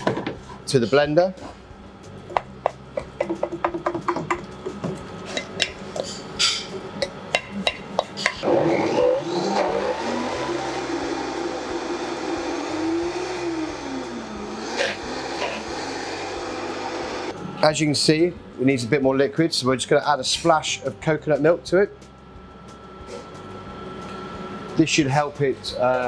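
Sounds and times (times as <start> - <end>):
blender motor churning: 8.4 - 17.3.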